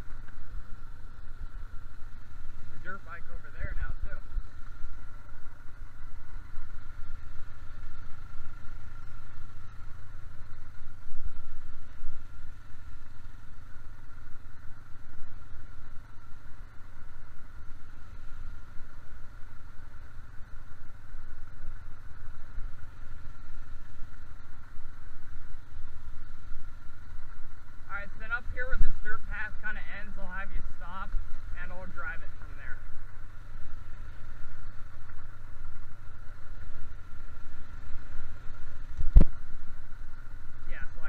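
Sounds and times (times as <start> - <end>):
atv engine running: 0.0 - 41.0.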